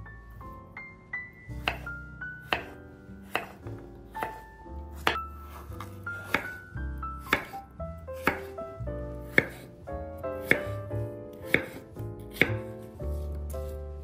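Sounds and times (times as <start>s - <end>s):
background music: 0.0s - 14.0s
knife chopping on wooden board: 1.6s - 7.6s, 8.2s - 8.6s, 9.2s - 13.8s.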